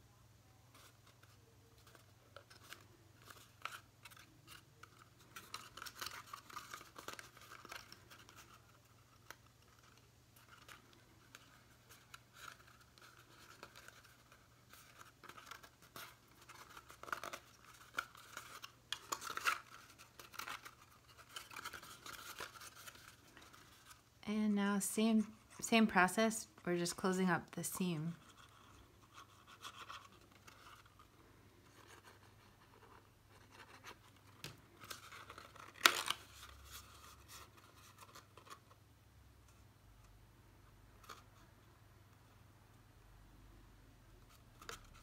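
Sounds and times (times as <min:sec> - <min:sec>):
paper rustling and clicking: 0:00.7 - 0:24.0, 0:31.7 - 0:38.8.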